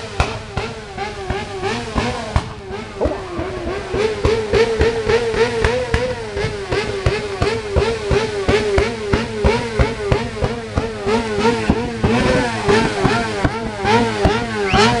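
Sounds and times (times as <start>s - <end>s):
motorcycle engine on rev limiter: 0.0s - 15.0s
sharp engine cracks: 2.4s - 7.6s.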